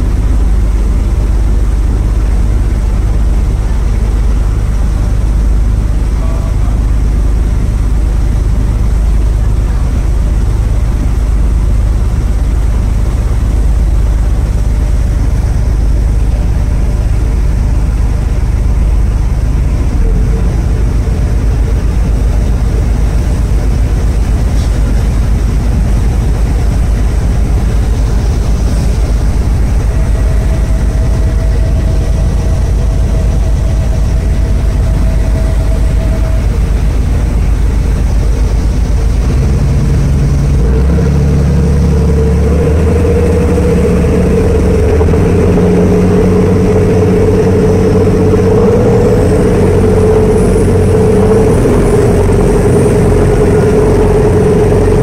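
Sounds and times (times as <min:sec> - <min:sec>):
faint steady whine: 0:00.0 - 0:55.0
ferry engine drone: 0:00.0 - 0:55.0.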